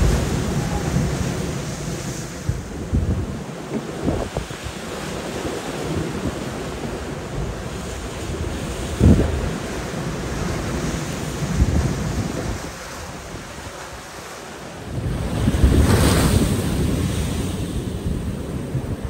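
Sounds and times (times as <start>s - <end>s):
wind buffeting the microphone: 0.0s - 14.2s, 14.8s - 19.0s
waves crashing against a seawall: 0.0s - 19.0s.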